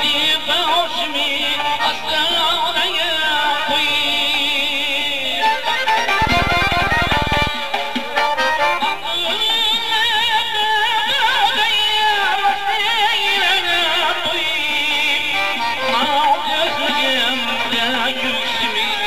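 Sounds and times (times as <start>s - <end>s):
instrumental music: 1.2s - 10.8s, 14.2s - 19.0s
person singing with vibrato: 8.8s - 19.0s.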